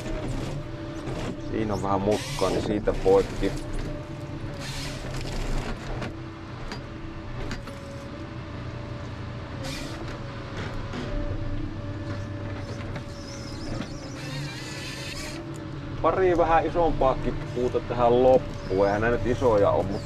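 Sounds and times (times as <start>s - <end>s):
diesel engine and hydraulics whine: 0.0s - 20.0s
hydraulic hissing rushes: 2.0s - 3.2s.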